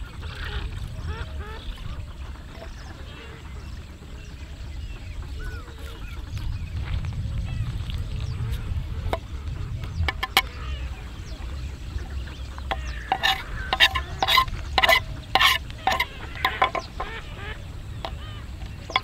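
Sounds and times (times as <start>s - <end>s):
low rumble: 5.2s - 18.9s
metal spatula scraping in a pan: 10.1s - 10.5s, 12.7s - 17.2s, 18.0s - 19.0s.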